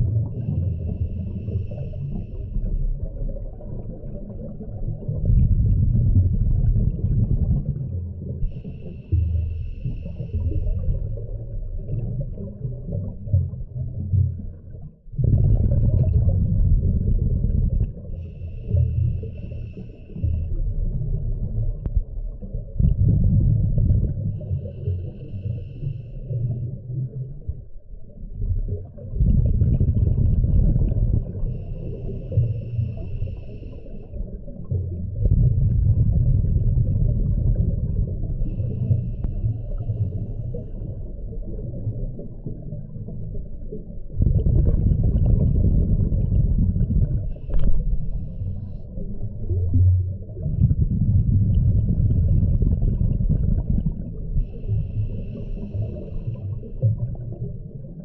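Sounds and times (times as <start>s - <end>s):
exhaled bubbles rumbling underwater: 0.0s - 58.0s
regulator whistling hiss on inhale: 18.2s - 20.6s, 31.6s - 34.2s.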